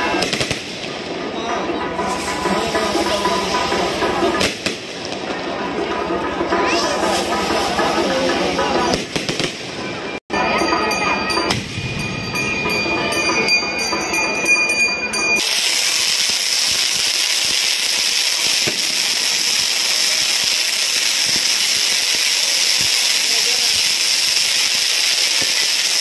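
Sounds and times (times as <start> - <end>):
firework hissing: 0.0 - 1.3, 2.0 - 5.4, 6.7 - 9.8, 15.4 - 26.0
firework whistling: 0.0 - 5.4, 6.6 - 26.0
firework crackling: 0.0 - 10.2, 15.1 - 26.0.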